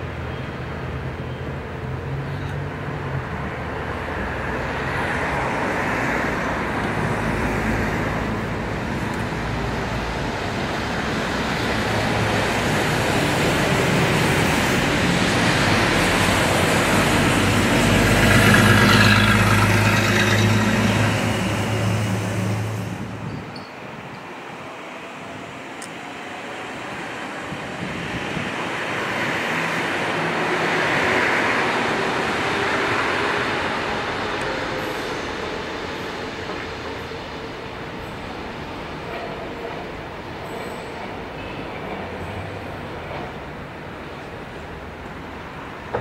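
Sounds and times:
electric train passing: 0:00.0 - 0:46.0.

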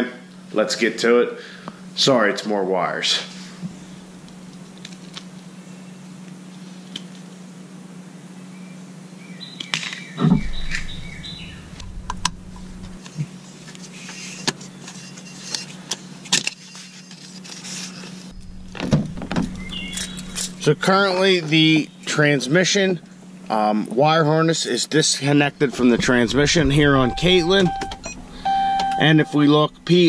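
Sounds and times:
steady low hum: 0:00.0 - 0:30.0
loud thump: 0:18.4 - 0:20.6.

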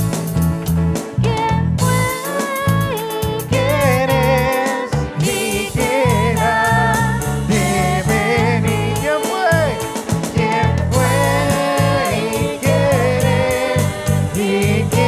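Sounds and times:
deep bass line: 0:00.0 - 0:15.0
drum kit: 0:00.0 - 0:15.0
guitar: 0:00.0 - 0:15.0
man singing: 0:03.6 - 0:10.0, 0:10.8 - 0:15.0.

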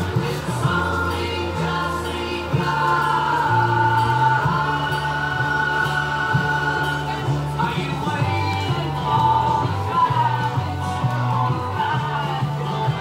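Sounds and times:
held sung voices: 0:00.0 - 0:13.0
stepping bass line: 0:00.0 - 0:13.0.

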